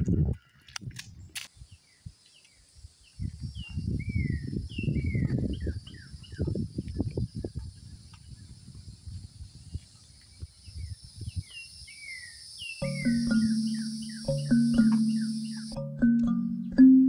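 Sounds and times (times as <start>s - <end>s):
birds chirping: 10.2s - 17.0s
high insect drone: 10.7s - 15.9s.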